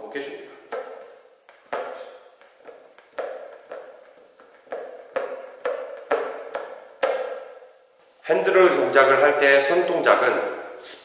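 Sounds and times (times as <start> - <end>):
basketball smacking on hand: 0.6 - 7.7.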